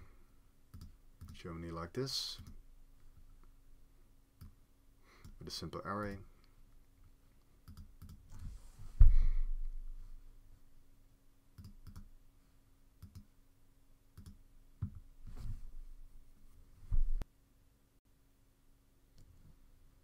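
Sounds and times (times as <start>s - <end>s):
faint steady hum: 0.0s - 20.0s
heavy thump: 8.9s - 9.7s.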